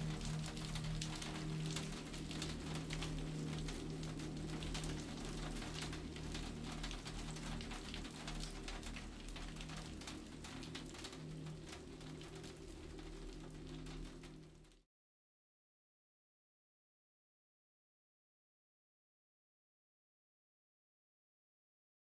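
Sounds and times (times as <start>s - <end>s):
rain pattering: 0.0s - 14.8s.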